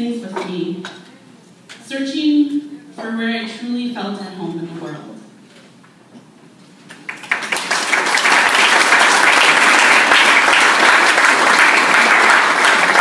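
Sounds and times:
audience applause: 7.0 - 13.0.

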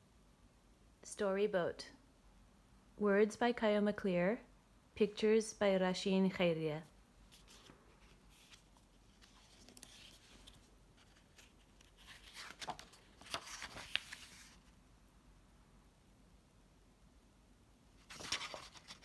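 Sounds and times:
book pages turning: 7.3 - 14.7, 18.0 - 19.0
paper flicks and ticks: 9.2 - 10.6, 11.4 - 14.4.

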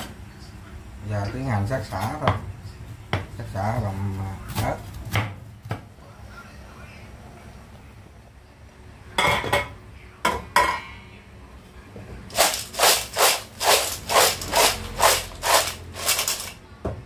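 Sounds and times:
snail shells rattling in pot: 12.3 - 16.6.

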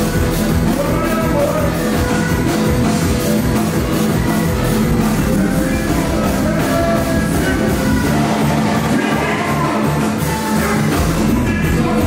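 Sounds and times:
live carnival band music: 0.0 - 12.0
vocalist singing on microphone: 0.7 - 3.2, 5.0 - 12.0.

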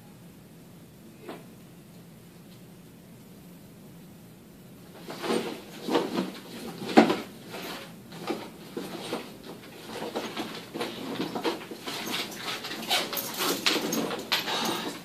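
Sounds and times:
backpack being rummaged through: 5.0 - 15.0.

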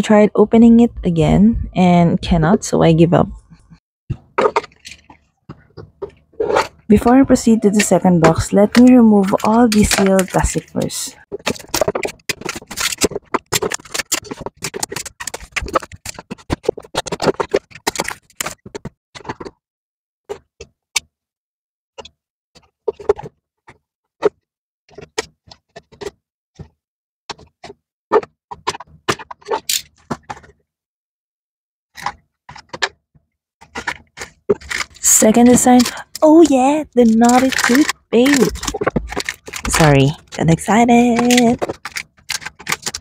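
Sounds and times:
plastic wrap crinkling: 7.4 - 18.8, 33.8 - 43.0.

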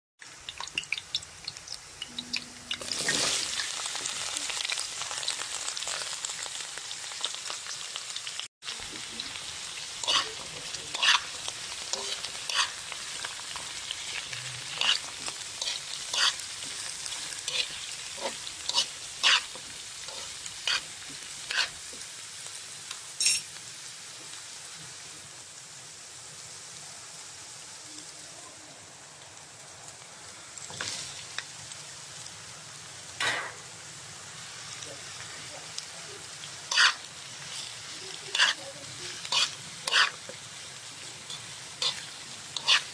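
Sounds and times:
food sizzling in oil: 0.2 - 42.9
metal spatula scraping pan: 10.0 - 11.3, 11.9 - 12.8, 14.2 - 16.4, 17.4 - 21.8, 36.7 - 37.0, 38.3 - 40.3, 41.3 - 42.9.

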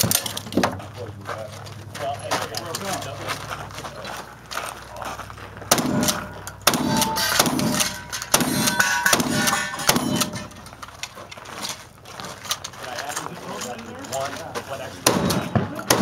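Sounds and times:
gunshots: 5.7 - 10.5, 15.0 - 16.0
metallic ring of steel target: 5.7 - 10.8.

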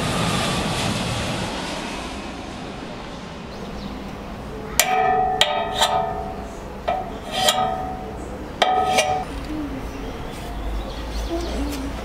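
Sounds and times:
pitched percussion notes ringing: 4.7 - 9.8.

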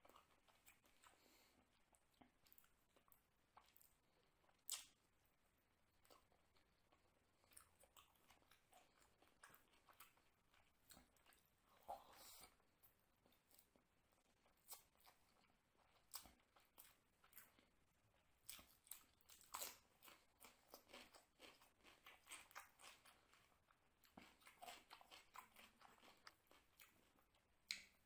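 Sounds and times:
faint chewing mouth clicks: 24.0 - 28.0.

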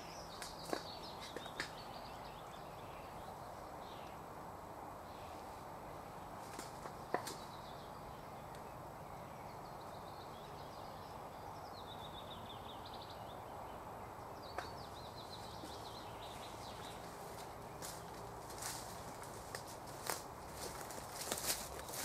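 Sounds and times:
steady low hiss: 0.0 - 22.0
nightingale singing: 7.0 - 22.0.

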